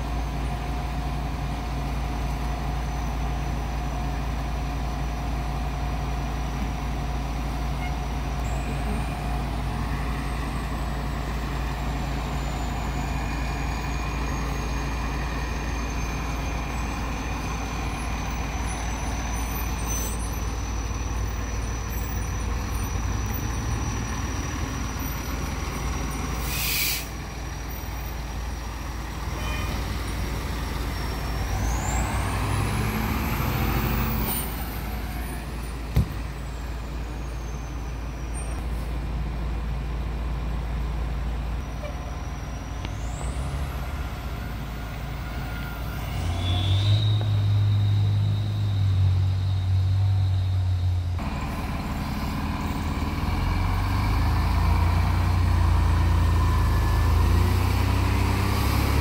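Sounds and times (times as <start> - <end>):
diesel fire trucks idling: 0.0 - 46.2, 47.1 - 59.0
truck engine revving with whine: 7.0 - 38.6, 41.6 - 59.0
air brake hiss: 26.3 - 27.2.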